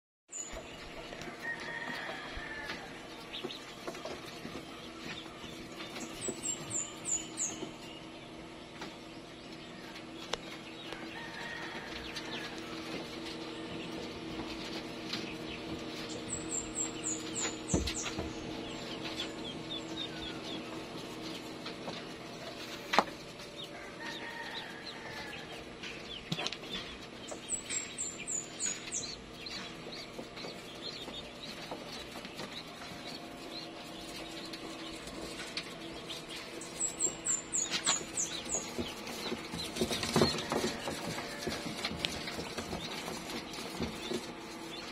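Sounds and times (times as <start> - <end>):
incubator fans humming: 0.3 - 44.9.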